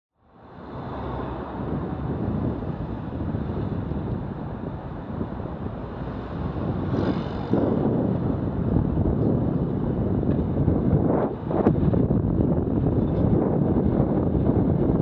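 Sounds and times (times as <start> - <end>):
wind buffeting microphone: 0.4 - 15.0.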